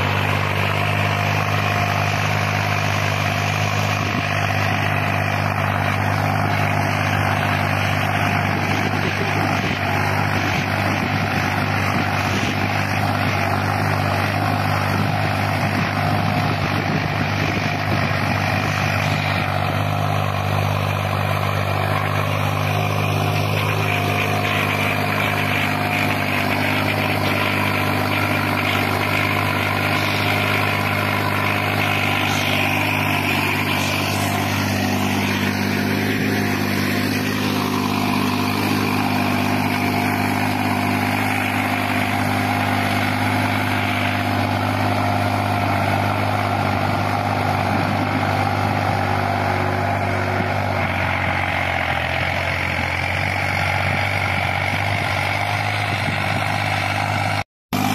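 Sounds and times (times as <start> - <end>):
tractor diesel engine under load: 0.0 - 57.9.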